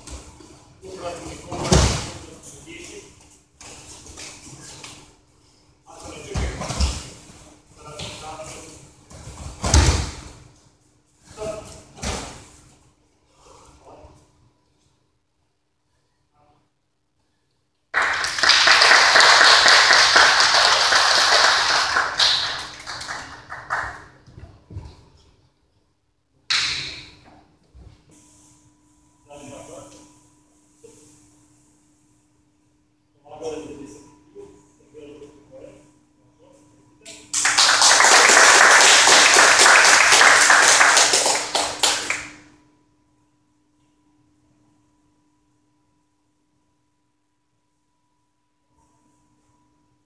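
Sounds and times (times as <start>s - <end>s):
small audience applauding: 17.9s - 24.3s, 37.3s - 42.5s.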